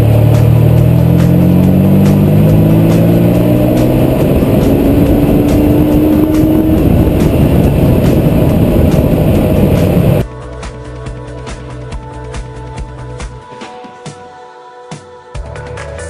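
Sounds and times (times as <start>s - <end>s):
car engine accelerating: 0.0s - 10.2s
electronic music: 0.0s - 10.3s.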